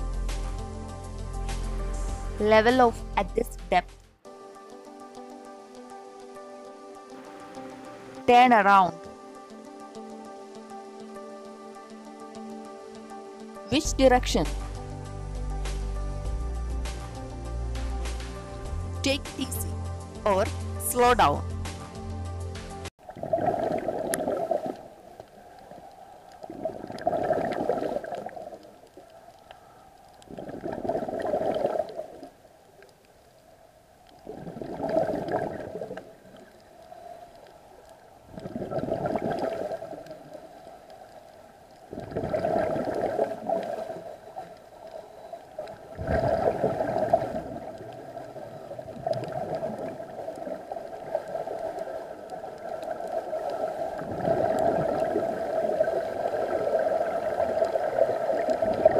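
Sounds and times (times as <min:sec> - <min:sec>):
scuba regulator exhaust bubbles: 0:23.0 - 0:25.8, 0:26.4 - 0:28.8, 0:30.2 - 0:32.3, 0:34.2 - 0:36.5, 0:38.2 - 0:40.4, 0:41.9 - 0:44.5, 0:45.7 - 0:58.9.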